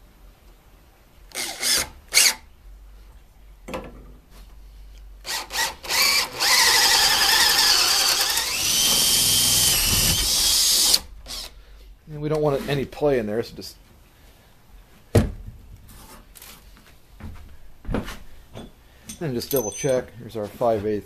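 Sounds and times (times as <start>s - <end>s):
drill boring into wood: 1.3s - 2.4s, 5.2s - 11.5s.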